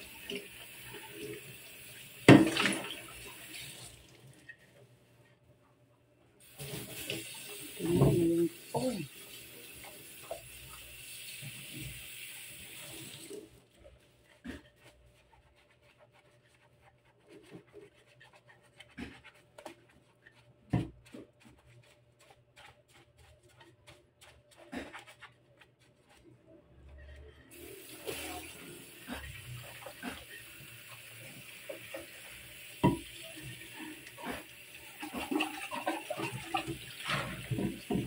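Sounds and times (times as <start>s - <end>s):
tap water running into sink: 0.0s - 4.4s, 6.4s - 13.6s, 27.5s - 38.0s
sponge scrubbing plastic: 6.4s - 38.0s.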